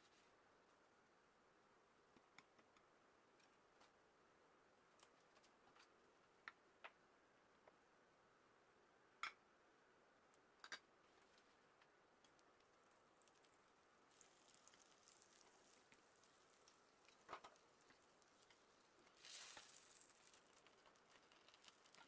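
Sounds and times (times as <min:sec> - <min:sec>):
low frying hiss: 0:00.0 - 0:22.0
toast frying pops and crackles: 0:10.6 - 0:22.0.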